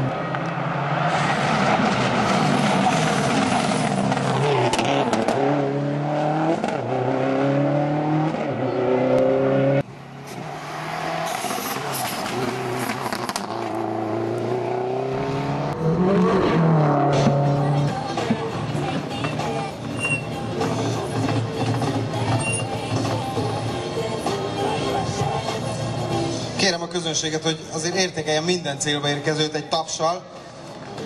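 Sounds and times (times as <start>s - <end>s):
rally car engine accelerating: 0.0s - 18.0s.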